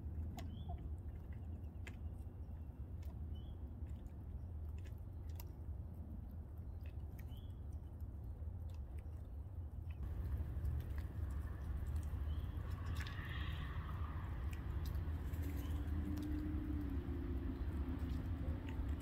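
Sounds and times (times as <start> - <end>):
steady low rumble: 9.7 - 19.0.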